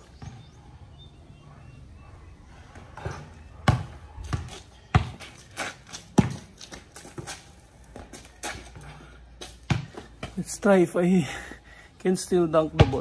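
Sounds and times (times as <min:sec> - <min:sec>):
basketball bouncing on hard court: 0:03.0 - 0:07.4, 0:09.7 - 0:10.3, 0:12.8 - 0:13.0.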